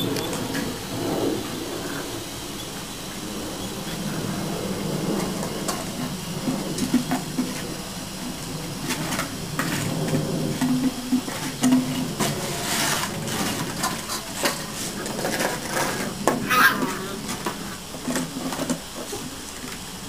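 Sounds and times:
water spray hissing: 0.0 - 20.0.

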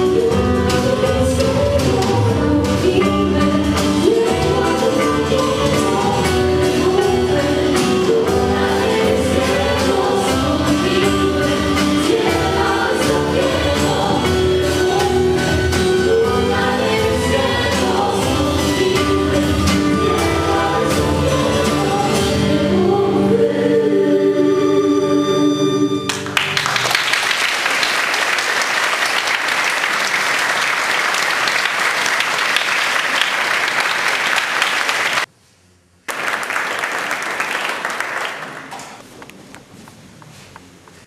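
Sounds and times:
choir singing a carol: 0.2 - 26.1
congregation applauding: 26.1 - 35.3, 36.1 - 39.1.

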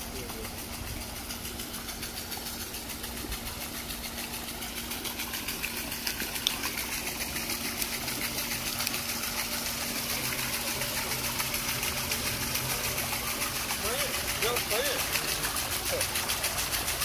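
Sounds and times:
steady hum: 0.0 - 17.0
water splashing and churning: 0.0 - 17.0
fast even ticking: 10.3 - 17.0.

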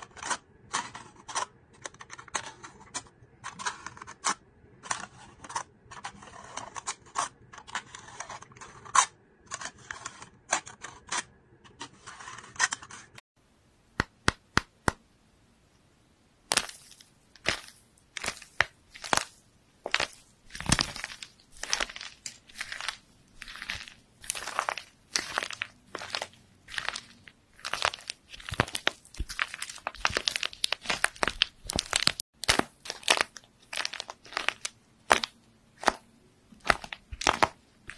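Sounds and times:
foam toy coating cracking: 16.5 - 36.0.

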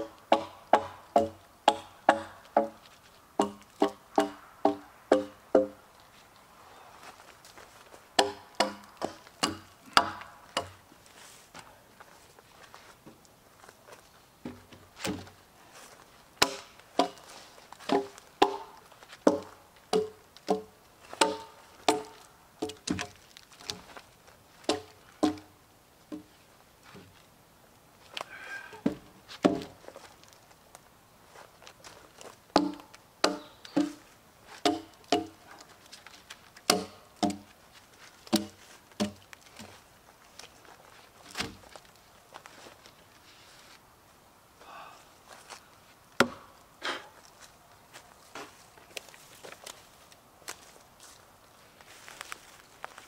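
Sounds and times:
wooden logs clunking: 0.0 - 6.1, 7.0 - 13.3, 13.9 - 27.2, 28.1 - 30.6, 31.6 - 43.0, 46.2 - 51.2
log scraping: 0.0 - 25.5, 28.0 - 43.8.

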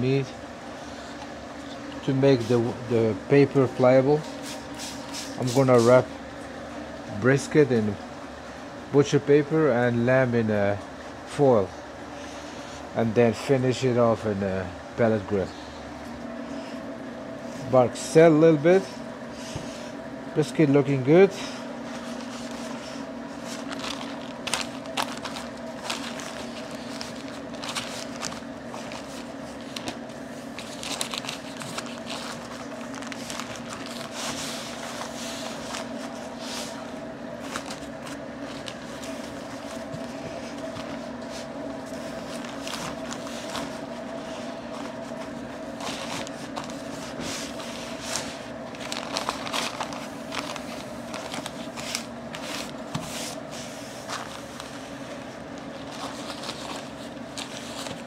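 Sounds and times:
steady low hum: 0.0 - 58.0
paper crinkling and rustling: 21.4 - 58.0.

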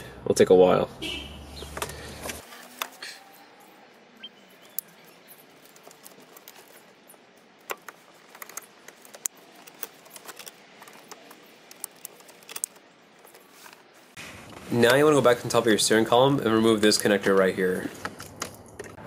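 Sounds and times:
plastic connectors clicking and rattling: 4.8 - 6.9, 7.6 - 13.5.

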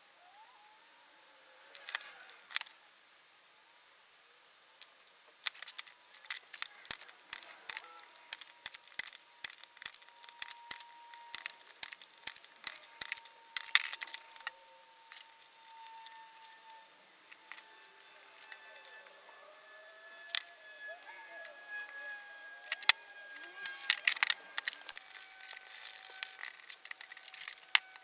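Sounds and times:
tools and small parts handled: 1.7 - 2.7, 4.8 - 28.0
faint steady high tone: 5.8 - 28.0.

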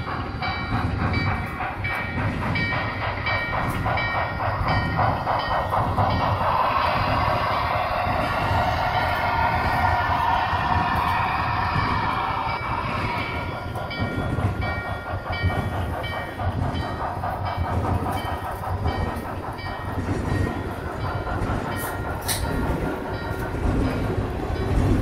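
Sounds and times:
model train wheels rumbling: 0.0 - 25.0
sharp clicks: 13.6 - 23.9.

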